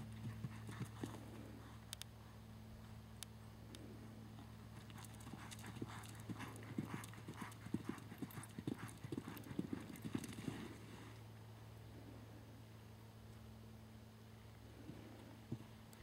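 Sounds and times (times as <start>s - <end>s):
horse hoofbeats on soft dirt: 0.0s - 11.2s, 14.8s - 16.0s.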